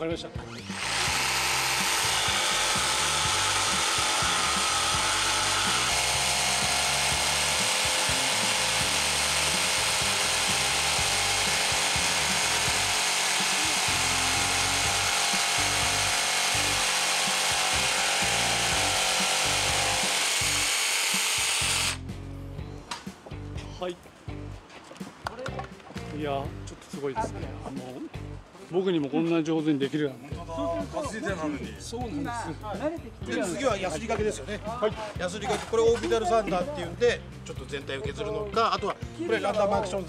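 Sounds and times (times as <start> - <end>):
jigsaw sawing through wood: 0.5 - 22.0.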